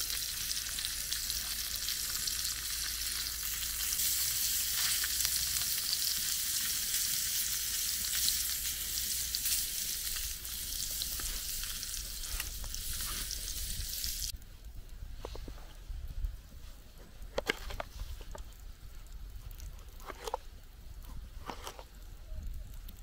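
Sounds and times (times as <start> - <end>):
sausages sizzling in a pan: 0.0 - 14.4.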